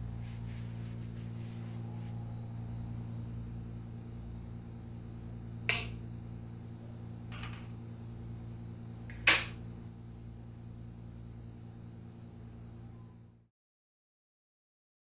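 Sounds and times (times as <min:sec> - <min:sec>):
steady low hum: 0:00.0 - 0:13.5
sharp snaps: 0:05.7 - 0:06.0.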